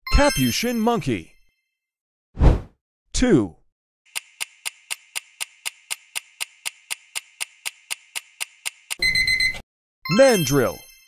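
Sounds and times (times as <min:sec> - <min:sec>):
clock ticking: 0:04.1 - 0:09.3.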